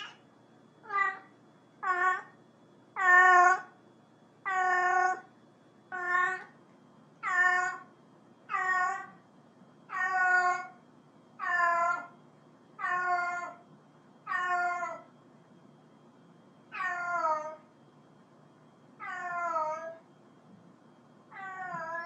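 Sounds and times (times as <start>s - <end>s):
cat meowing: 0.8s - 2.4s, 3.0s - 3.7s, 4.5s - 5.3s, 5.9s - 6.5s, 7.2s - 7.9s, 8.5s - 9.2s, 9.9s - 10.7s, 11.4s - 12.1s, 12.8s - 13.6s, 14.3s - 15.1s, 16.8s - 17.6s, 19.0s - 20.0s, 21.3s - 22.0s.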